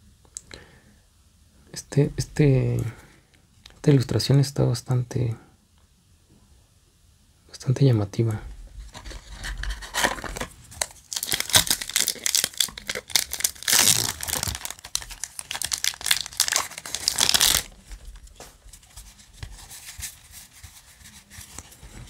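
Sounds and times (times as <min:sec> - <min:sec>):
cards rustling: 0:08.8 - 0:22.0
foil wrapper crinkling and tearing: 0:09.0 - 0:18.3.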